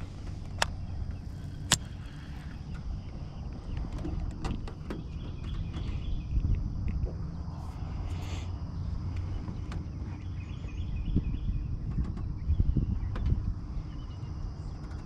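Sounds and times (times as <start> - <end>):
light clicks: 0.0 - 7.0
wind rumble on microphone: 0.0 - 15.0.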